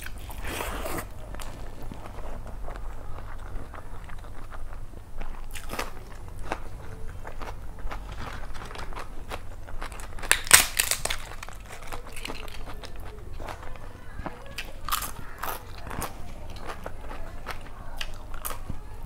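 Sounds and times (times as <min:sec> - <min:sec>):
crunching and chewing: 0:00.0 - 0:19.0.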